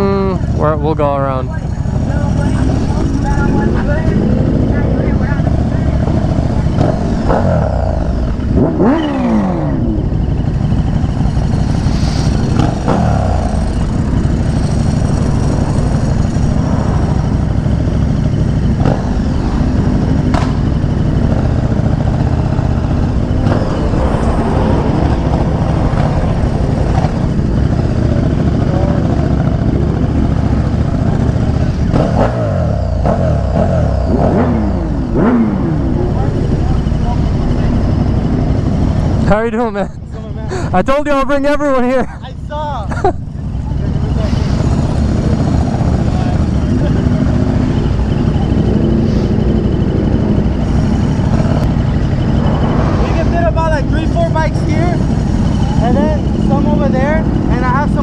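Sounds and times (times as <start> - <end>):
motorcycle engine running: 0.0 - 58.0
wind rush: 1.9 - 8.2, 11.8 - 17.9, 22.5 - 27.8, 50.4 - 55.3.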